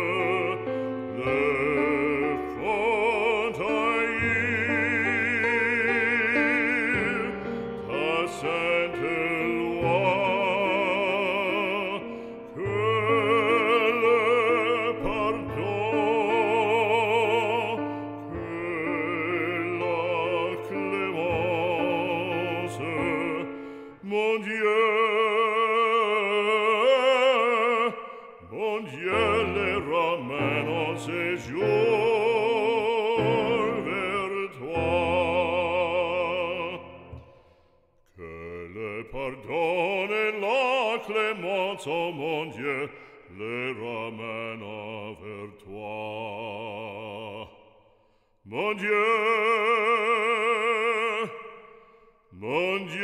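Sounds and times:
operatic voice singing aria: 0.0 - 37.2, 38.2 - 47.8, 48.5 - 51.7, 52.3 - 53.0
classical accompaniment: 0.0 - 37.6.

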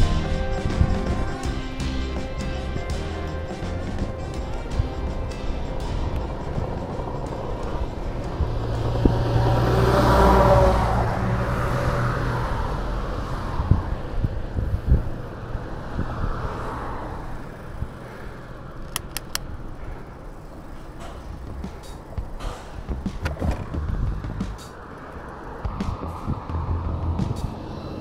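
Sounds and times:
car passing by: 5.2 - 18.9, 19.7 - 28.0
sharp clicks: 18.8 - 19.6.

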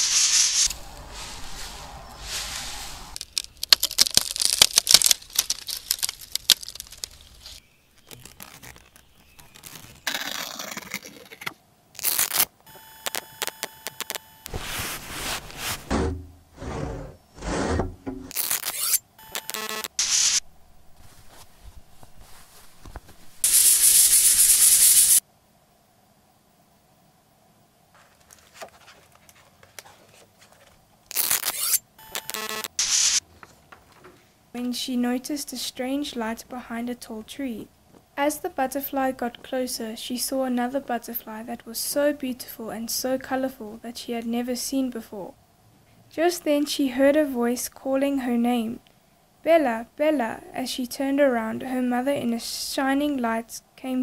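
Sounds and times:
faint rustling: 0.0 - 10.1, 14.5 - 18.4, 20.4 - 23.4
scraping and rubbing noises: 0.0 - 12.4, 14.0 - 19.8, 20.9 - 24.8
sharp crackles and tearing snaps: 3.2 - 14.6, 18.3 - 20.0, 31.1 - 32.8
stuttering electronic tone: 12.1 - 14.5, 18.3 - 20.4, 31.2 - 33.2
book scraping against books: 14.5 - 19.0.

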